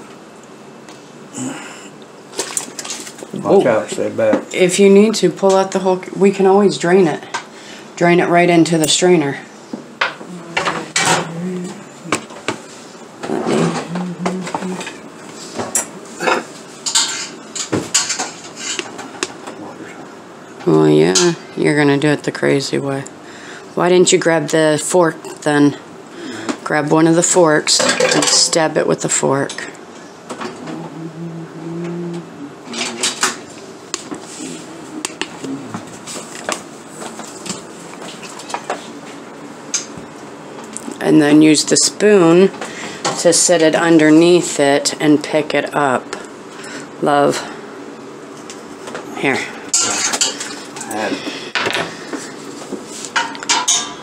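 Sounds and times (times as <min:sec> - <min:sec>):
metal utensils clinking on pots: 0:15.8 - 0:18.8, 0:27.8 - 0:28.6, 0:49.7 - 0:50.5, 0:53.2 - 0:54.0
metal cookware clattering: 0:16.3 - 0:18.9, 0:27.7 - 0:28.7, 0:49.7 - 0:50.6, 0:53.2 - 0:54.0.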